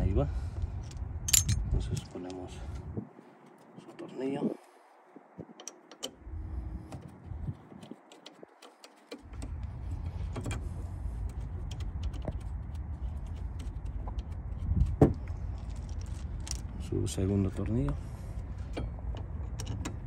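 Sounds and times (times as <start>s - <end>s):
steady low rumble: 0.0s - 7.8s, 9.2s - 20.0s
small metallic clicks and taps: 5.5s - 6.2s.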